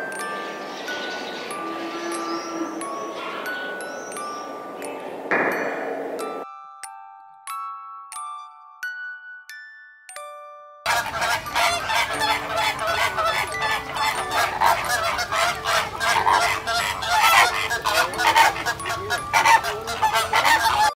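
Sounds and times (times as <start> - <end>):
flamingos honking: 0.0 - 6.4, 10.9 - 21.0.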